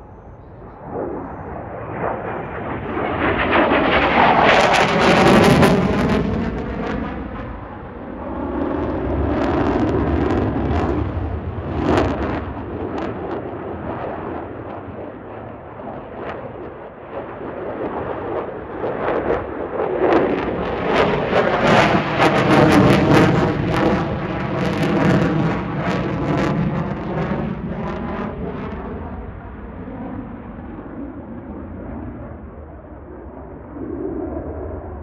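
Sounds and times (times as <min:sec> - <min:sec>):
jet engine passing: 0:00.0 - 0:35.0.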